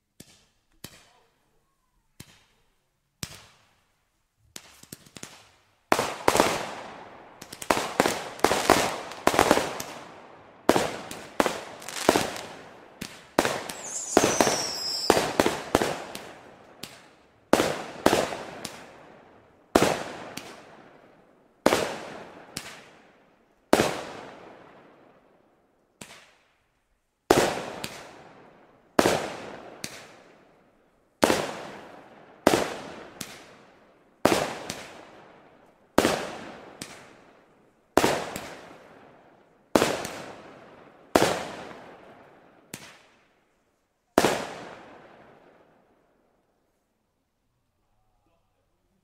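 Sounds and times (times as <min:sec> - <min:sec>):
fireworks launching and bursting: 0:04.5 - 0:19.0
falling firework whistle: 0:13.5 - 0:15.7.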